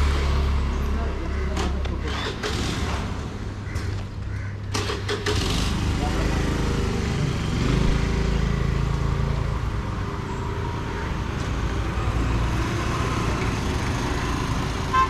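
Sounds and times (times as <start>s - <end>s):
low road rumble: 0.0s - 15.0s
vehicle engines running: 0.0s - 15.0s
vehicle passing: 4.8s - 14.9s.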